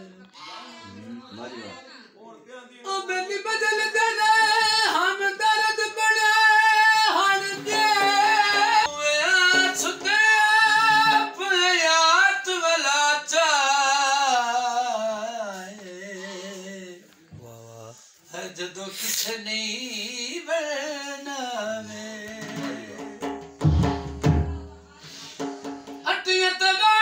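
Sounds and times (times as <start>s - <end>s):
man singing folk song: 2.8s - 23.2s, 26.0s - 27.0s.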